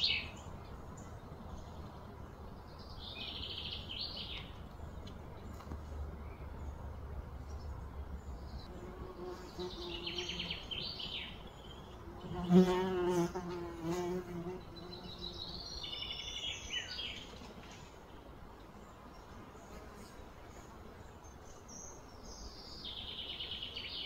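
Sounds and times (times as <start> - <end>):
birds chirping: 0.0 - 19.8
insect buzzing: 11.9 - 15.6.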